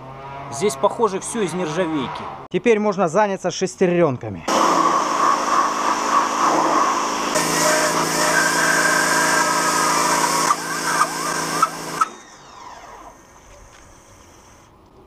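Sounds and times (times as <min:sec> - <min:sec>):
hissing water jet: 0:04.5 - 0:12.1
pressure washer pump humming: 0:04.5 - 0:14.7.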